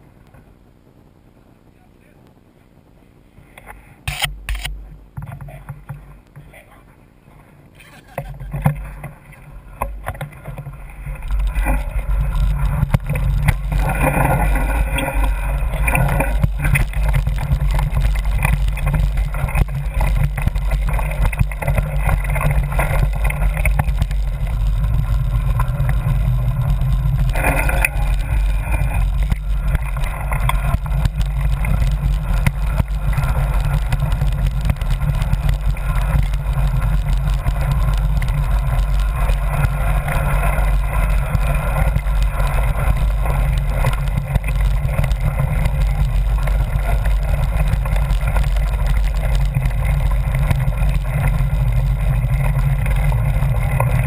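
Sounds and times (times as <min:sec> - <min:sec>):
bike ride rumble: 0:00.0 - 0:54.0
small rattles: 0:07.8 - 0:54.0.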